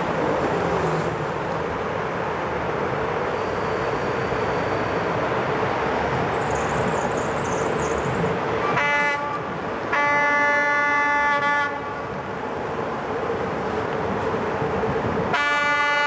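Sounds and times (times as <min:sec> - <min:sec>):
train running noise: 0:00.0 - 0:16.0
locomotive horn blasts: 0:08.7 - 0:12.0, 0:15.3 - 0:16.0.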